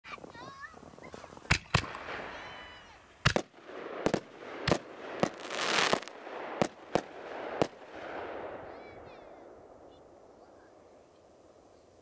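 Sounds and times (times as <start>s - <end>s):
crackling hiss of sparks: 0.1s - 7.8s
fireworks bangs: 0.1s - 12.0s.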